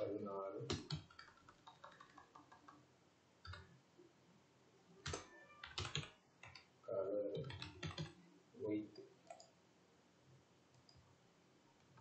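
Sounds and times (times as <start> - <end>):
computer keyboard typing: 0.7 - 2.8, 3.4 - 3.7, 5.0 - 6.7, 7.3 - 8.2.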